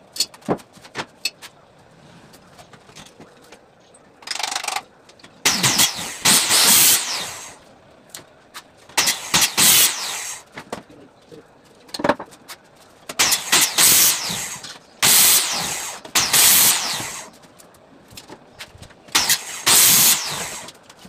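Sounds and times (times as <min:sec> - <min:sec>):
electric saw cutting plywood: 0:05.5 - 0:07.6, 0:09.0 - 0:10.4, 0:13.2 - 0:17.3, 0:19.2 - 0:20.7.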